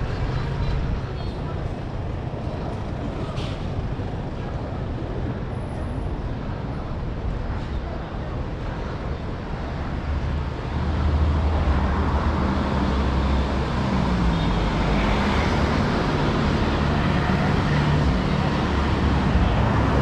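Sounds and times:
city street traffic: 0.0 - 20.0
vehicle engine hum: 8.3 - 20.0.

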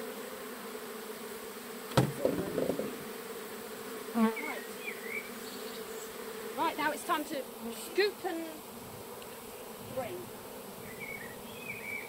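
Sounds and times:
honeybees buzzing: 0.0 - 12.0
sharp knock: 1.9 - 3.0.

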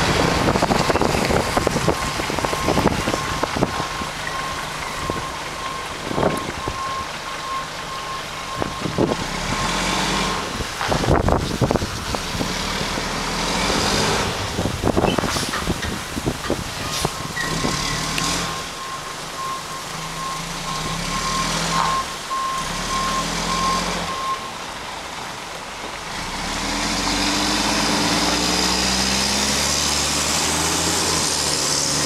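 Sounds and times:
diesel engine revving: 0.0 - 32.0
backup alarm beeping: 1.8 - 9.8, 18.5 - 24.6.

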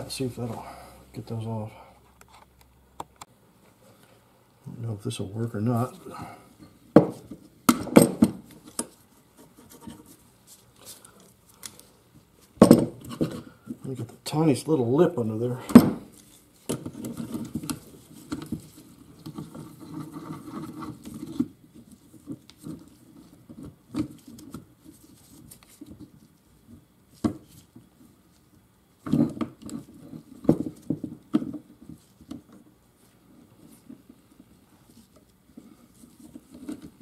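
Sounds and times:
tools clicking and knocking on metal: 7.0 - 8.9.

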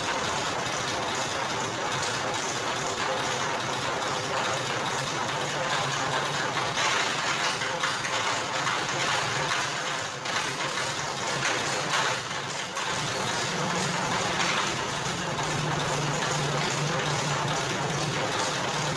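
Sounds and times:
rollers grinding sugarcane: 0.0 - 18.9.

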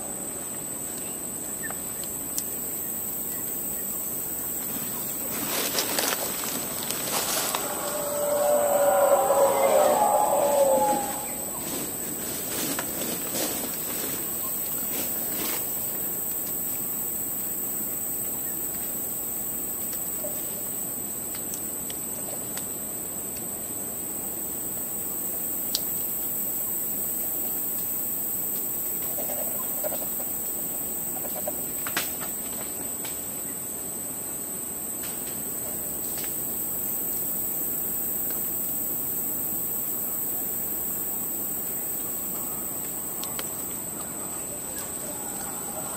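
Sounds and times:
insects buzzing: 0.0 - 21.8, 23.9 - 45.9
loud bird call: 7.2 - 11.7.

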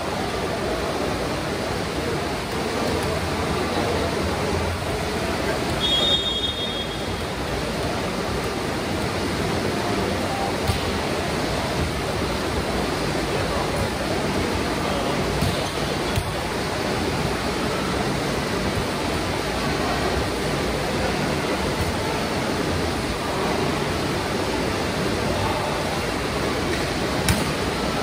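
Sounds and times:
sports hall rushing noise: 0.0 - 28.0
volleyball knocks: 10.6 - 11.0.

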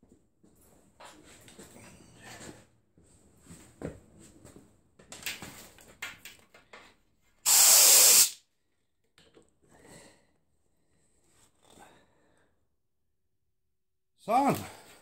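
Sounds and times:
compressed air blast hiss: 7.4 - 8.4.

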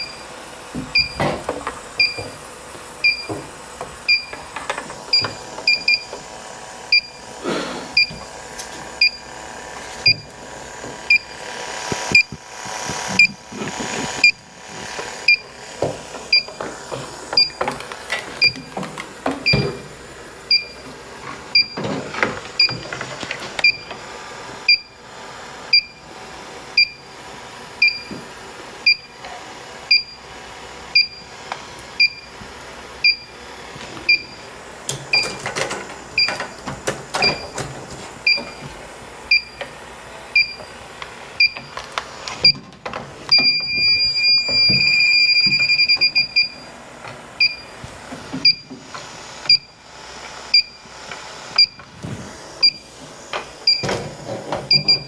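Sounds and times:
leak detector beeping: 0.0 - 6.2, 6.8 - 7.3, 7.9 - 8.3, 9.0 - 9.4, 10.0 - 10.4, 11.1 - 14.5, 15.2 - 15.5, 16.3 - 16.6, 17.3 - 17.7, 18.4 - 20.9, 21.5 - 21.9, 22.6 - 22.9, 23.6 - 24.0, 24.6 - 25.0, 25.7 - 26.1, 26.8 - 27.1, 27.8 - 28.2, 28.8 - 29.2, 29.9 - 30.3, 30.9 - 31.3, 32.0 - 32.4, 33.0 - 33.4, 34.1 - 34.5, 35.1 - 35.4, 36.2 - 37.6, 38.2 - 39.7, 40.3 - 40.8, 41.4 - 41.8, 42.4 - 42.6, 43.3 - 46.7, 47.4 - 47.8, 48.4 - 48.8, 49.4 - 49.8, 50.5 - 50.9, 51.6 - 51.9, 52.6 - 52.9, 53.6 - 54.0, 54.7 - 55.0.

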